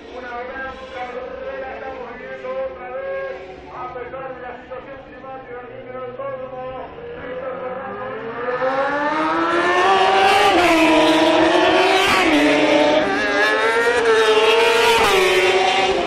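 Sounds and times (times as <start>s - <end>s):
motorbikes accelerating past: 6.9s - 16.0s.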